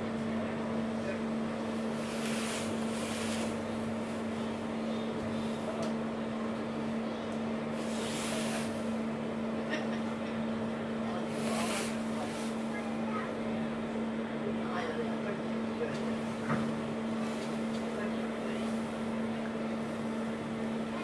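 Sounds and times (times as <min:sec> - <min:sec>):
boat engines humming: 0:00.0 - 0:21.0.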